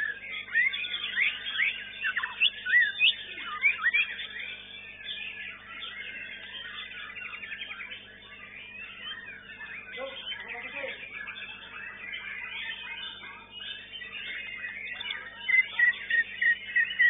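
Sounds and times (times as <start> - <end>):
birds singing whistled notes: 0.0 - 17.0
rapid rattling bird trill: 0.0 - 17.0.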